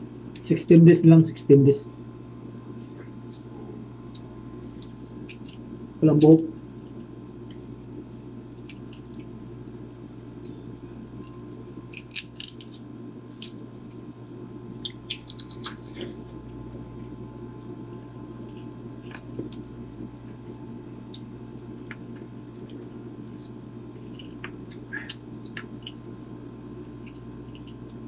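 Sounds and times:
steady low hum: 0:00.0 - 0:28.0
egg shells clicking and crackling: 0:05.2 - 0:07.5, 0:11.1 - 0:14.0, 0:14.8 - 0:15.9.

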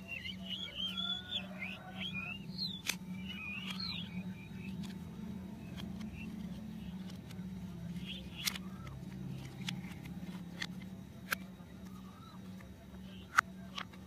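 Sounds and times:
steady low hum: 0:00.0 - 0:14.0
plastic toy parts clicking: 0:08.1 - 0:11.4.

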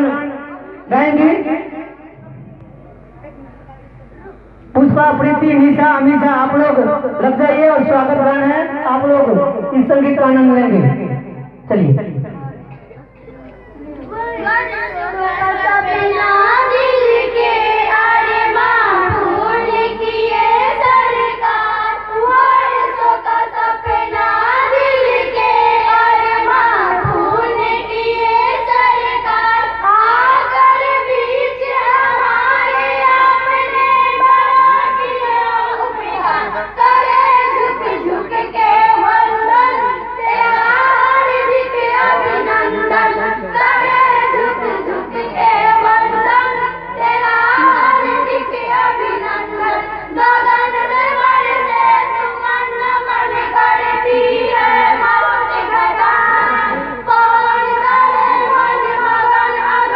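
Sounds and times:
girls singing into microphone: 0:12.7 - 0:59.9.

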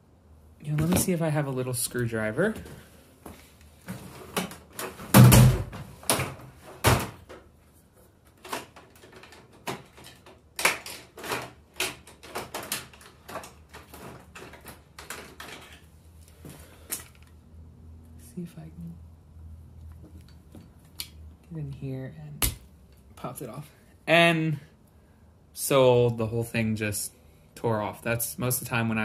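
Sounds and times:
rummaging through hand tools: 0:08.3 - 0:17.4.

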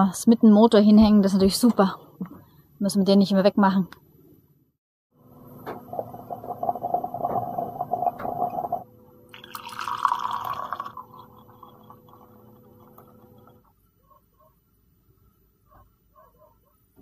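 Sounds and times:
moka pot gurgling and sputtering: 0:05.7 - 0:13.9
coffee pouring into a mug: 0:05.8 - 0:13.7.

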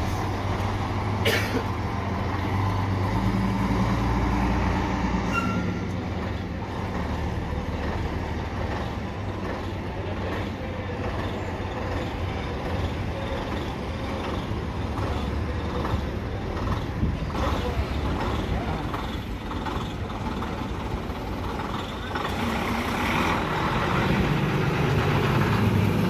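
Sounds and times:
bus diesel engine rumble: 0:00.0 - 0:26.0
street traffic noise: 0:00.0 - 0:26.0
high squeal: 0:05.2 - 0:05.8.

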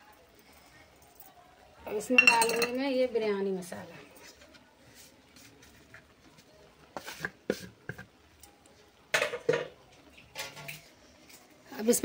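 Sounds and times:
plate knock and scrape: 0:02.2 - 0:02.8.

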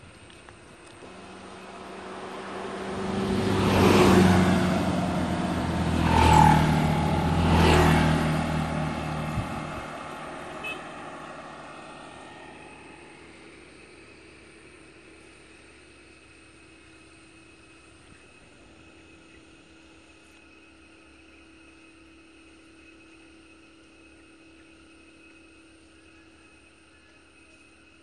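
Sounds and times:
motor scooters passing: 0:00.9 - 0:14.5.

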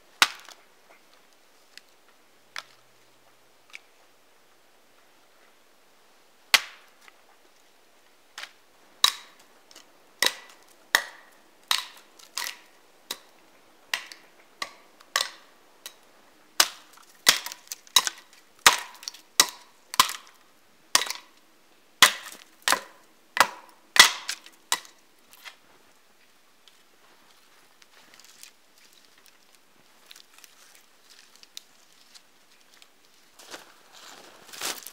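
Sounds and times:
dry branches cracking: 0:16.6 - 0:20.4, 0:26.6 - 0:34.9.

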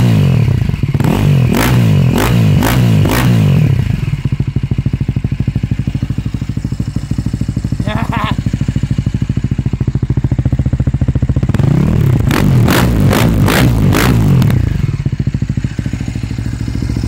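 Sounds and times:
engine revving: 0:00.0 - 0:04.2, 0:11.4 - 0:17.0
motorcycle engine idling: 0:00.0 - 0:17.0.

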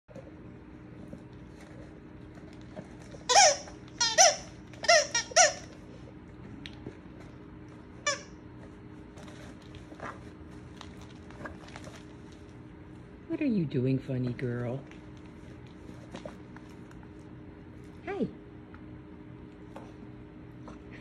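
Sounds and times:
chew toy squeaking: 0:03.3 - 0:05.8, 0:08.0 - 0:08.3.

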